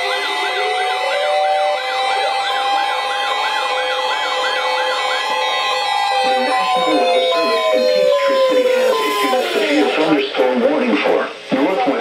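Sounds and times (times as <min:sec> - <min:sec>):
rising electronic siren tone: 0:00.0 - 0:10.1
warbling electronic siren: 0:00.0 - 0:10.3
steady beeping tones: 0:00.0 - 0:10.4.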